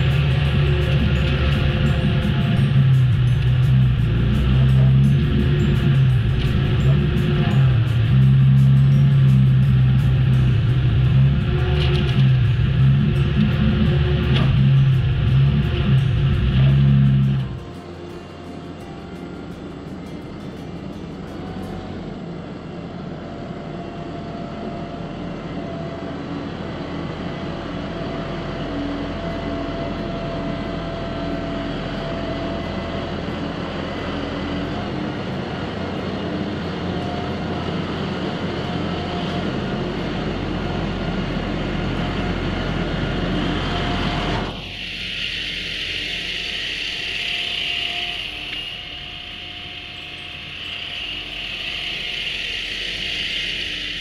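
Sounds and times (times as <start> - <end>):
hiss: 0.0 - 19.1, 41.9 - 54.0
tractor diesel engine running: 0.0 - 54.0.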